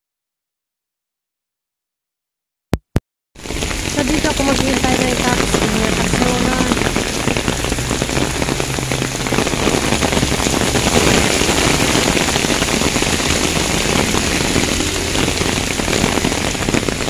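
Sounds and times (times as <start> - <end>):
cars driving on wet road: 3.4 - 17.0
rain on an umbrella: 3.4 - 17.0.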